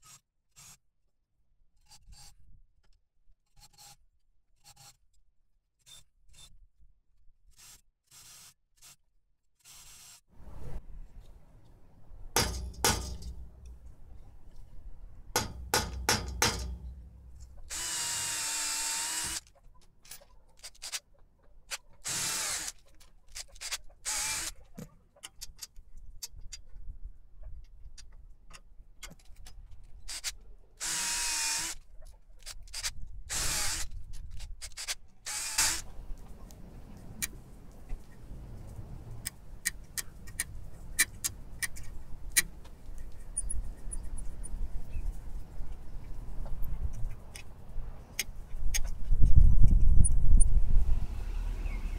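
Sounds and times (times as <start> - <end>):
metal clicks and taps: 12.4 - 13.9, 15.4 - 17.6
power drill drilling metal: 15.4 - 19.4, 22.0 - 22.7, 24.0 - 24.5, 30.8 - 31.8, 33.3 - 33.9, 35.3 - 35.8.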